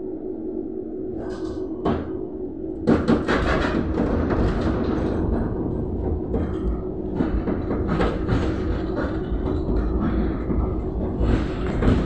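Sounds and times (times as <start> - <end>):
faint steady hum: 0.0 - 3.3
tram rumbling on track: 2.8 - 12.0
tram wheels knocking and rattling: 2.8 - 12.0.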